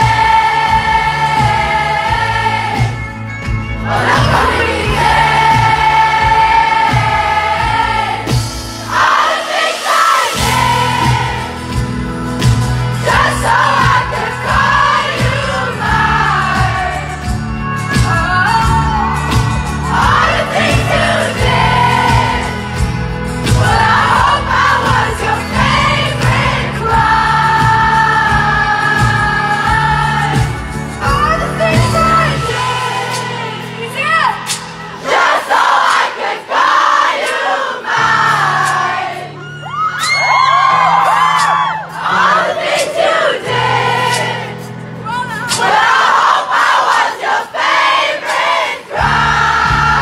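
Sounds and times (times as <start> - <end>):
live band bass: 0.0 - 9.3, 9.9 - 35.8, 37.9 - 46.1, 48.9 - 50.0
crowd singing along: 0.0 - 50.0
woman singing into microphone: 13.0 - 19.3, 23.6 - 34.6.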